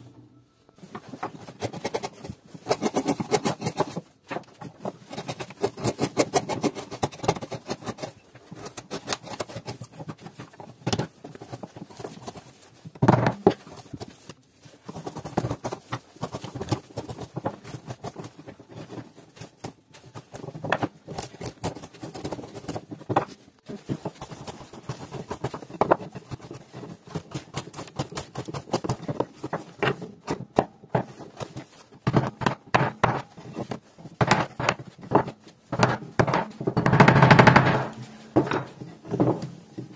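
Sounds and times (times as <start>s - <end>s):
chisel scraping wood: 1.3s - 10.6s.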